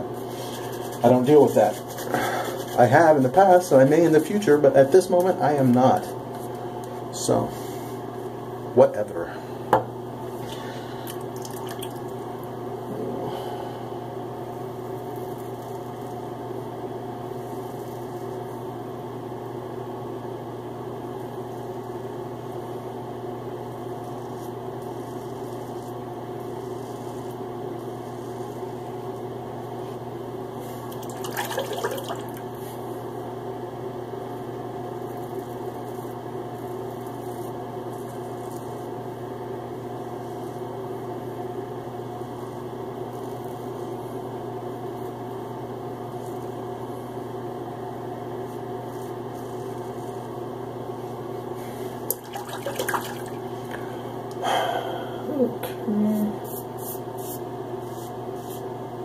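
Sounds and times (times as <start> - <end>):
machine hum: 0.0 - 59.0
water running: 30.9 - 32.4, 52.1 - 53.8
water splashing: 31.0 - 32.4, 52.1 - 53.4.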